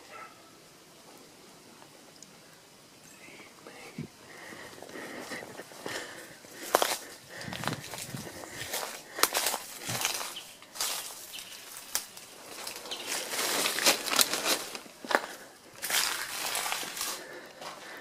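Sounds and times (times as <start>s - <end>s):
leaves and branches rustling: 0.0s - 18.0s
footsteps through dry leaves: 5.1s - 18.0s
twigs snapping: 6.6s - 17.3s.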